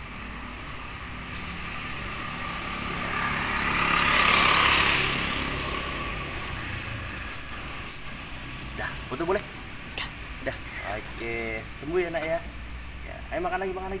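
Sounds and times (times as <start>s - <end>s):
aerosol spray hissing: 1.3s - 2.7s, 6.3s - 6.6s.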